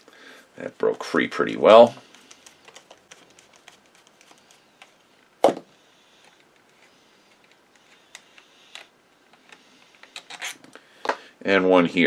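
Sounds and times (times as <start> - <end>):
faint fiddling with screw: 1.9 - 5.1, 6.2 - 10.8.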